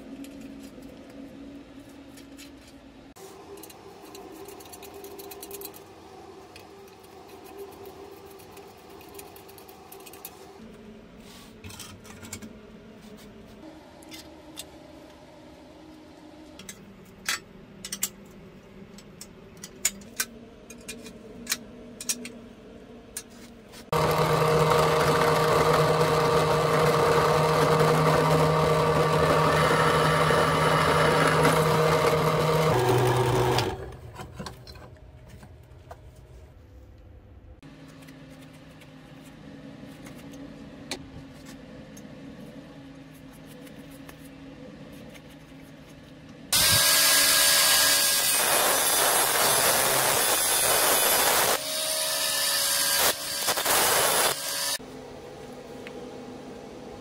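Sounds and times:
drill press motor humming: 23.9s - 34.5s.

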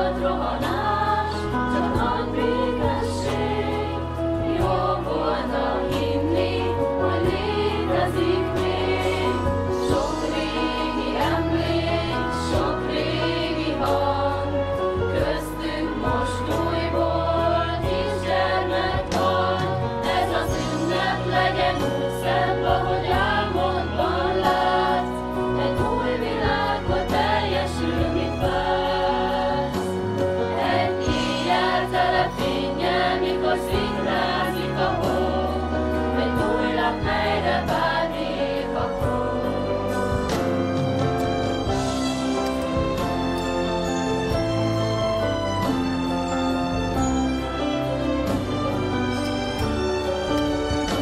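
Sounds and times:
group singing: 0.0s - 40.5s
instrumental accompaniment with bass: 0.0s - 51.0s.

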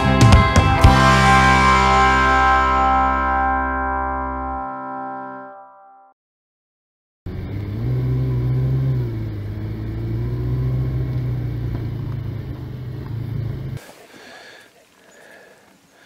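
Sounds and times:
vehicle engine drone: 7.3s - 13.8s.

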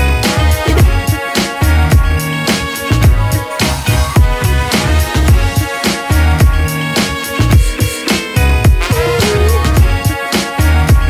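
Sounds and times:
held synth notes: 8.8s - 10.2s.

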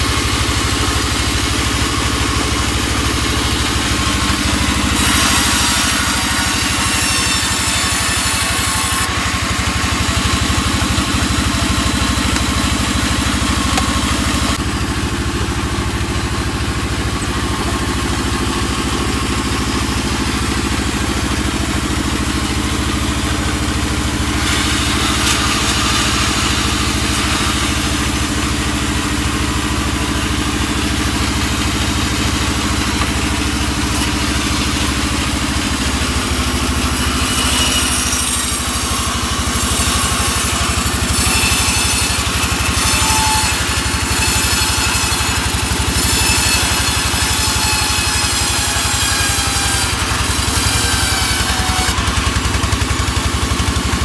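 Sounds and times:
band saw cutting wood: 0.0s - 54.0s
band saw humming: 0.0s - 54.0s.

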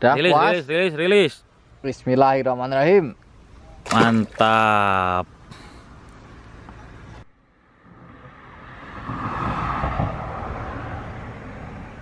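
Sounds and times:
faint outdoor background: 0.0s - 12.0s
vehicle passing by: 7.6s - 12.0s.

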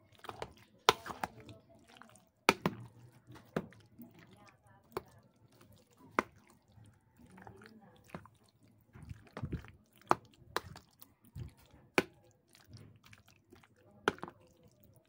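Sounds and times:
wet squelching of pasta: 0.0s - 15.0s.

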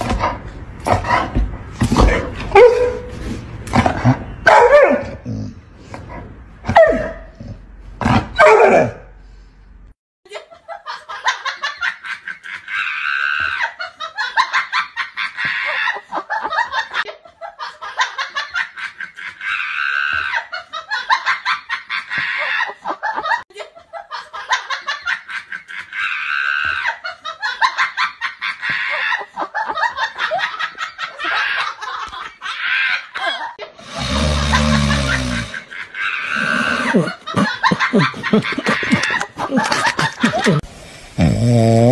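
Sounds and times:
looped recorded laugh: 10.3s - 40.7s.

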